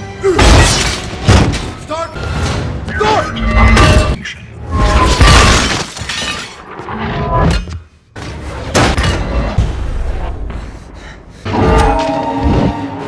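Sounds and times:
glass shattering: 0:04.9 - 0:06.6.

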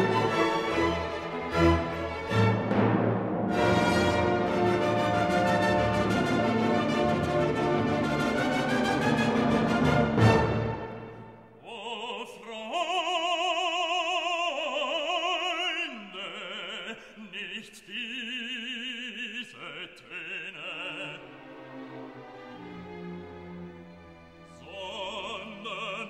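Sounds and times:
operatic voice singing: 0:11.6 - 0:21.5, 0:24.5 - 0:26.0.

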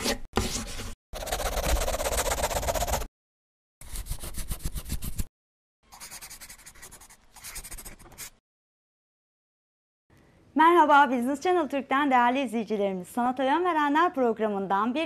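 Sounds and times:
pen scratching on paper: 0:00.0 - 0:03.1, 0:03.8 - 0:05.3, 0:05.9 - 0:08.4.

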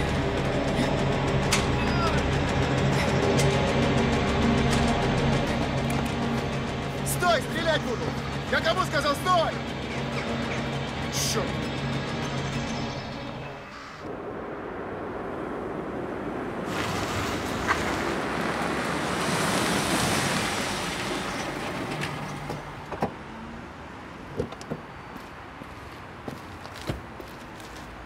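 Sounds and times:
car passing by: 0:13.7 - 0:23.7.

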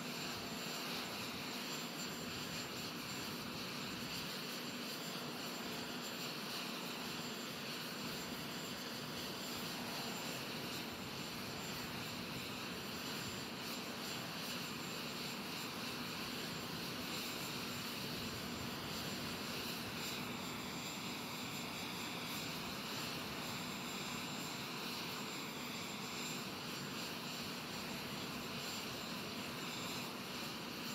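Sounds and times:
jet engine high whine: 0:00.0 - 0:30.9
jet engine rushing hiss: 0:00.0 - 0:30.9.

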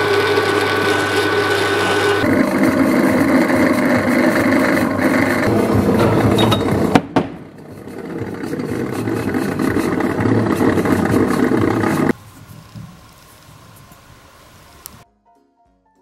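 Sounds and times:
drill press drilling steel: 0:00.0 - 0:06.9.

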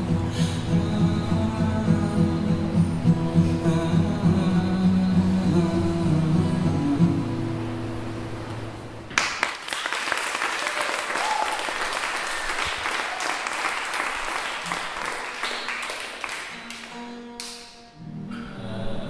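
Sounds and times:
acoustic guitar: 0:00.0 - 0:09.3, 0:14.1 - 0:19.0
audience applauding: 0:09.1 - 0:17.6.

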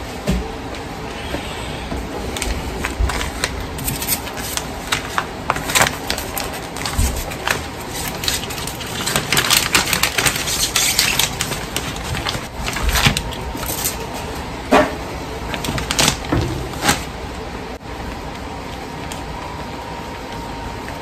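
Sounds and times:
plastic bag rustling and crinkling: 0:02.2 - 0:14.5, 0:15.4 - 0:17.2.

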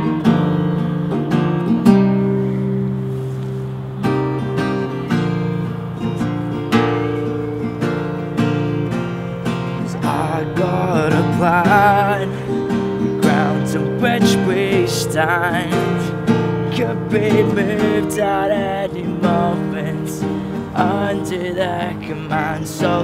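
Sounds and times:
strummed acoustic guitar: 0:00.0 - 0:23.0
man singing wavering notes: 0:09.8 - 0:23.0.

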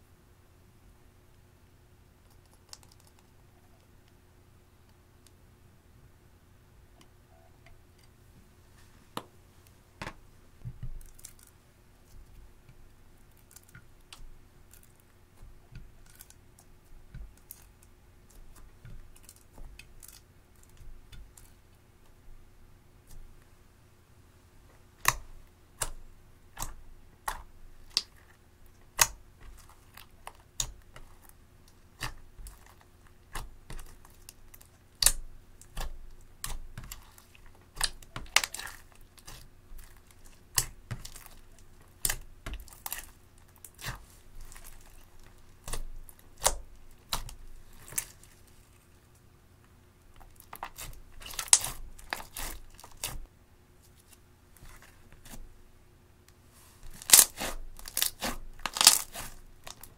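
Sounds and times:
slime crackling: 0:25.8 - 0:48.9, 0:50.2 - 0:53.2, 0:56.8 - 0:59.9.

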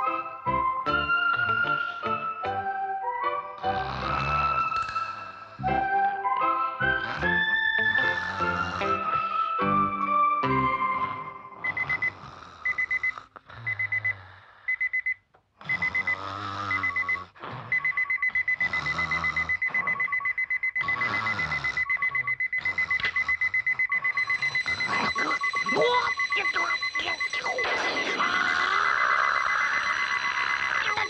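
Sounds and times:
electronic alarm clock beeping: 0:00.0 - 0:02.7, 0:07.2 - 0:31.0
lower beep: 0:11.6 - 0:13.1, 0:16.7 - 0:31.0.

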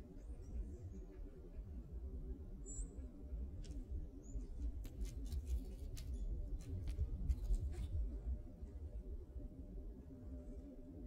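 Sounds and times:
squirrel cracking seeds: 0:04.6 - 0:07.6.

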